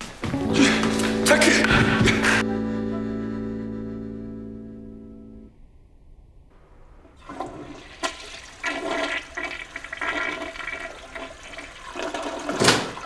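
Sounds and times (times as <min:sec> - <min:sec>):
toilet flushing: 0:07.2 - 0:13.0.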